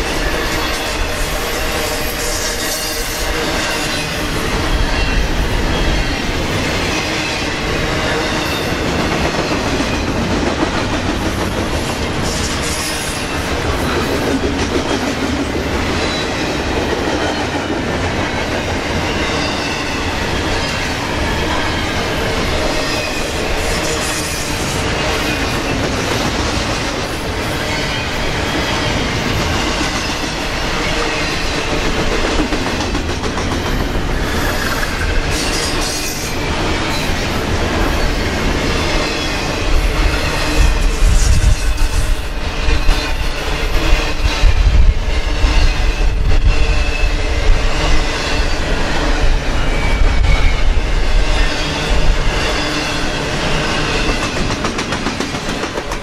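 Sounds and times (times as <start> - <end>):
steel train wheels rumbling on rail: 0.0 - 56.0
clickety-clack over rail joints: 8.1 - 27.6, 28.4 - 46.7, 50.0 - 56.0.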